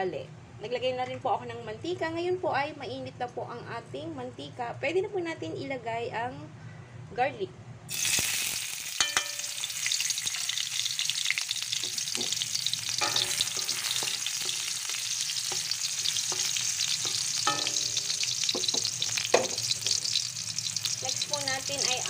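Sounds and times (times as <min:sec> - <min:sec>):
garlic sizzling in oil: 0:07.9 - 0:22.0
spatula scraping metal wok: 0:09.9 - 0:20.2.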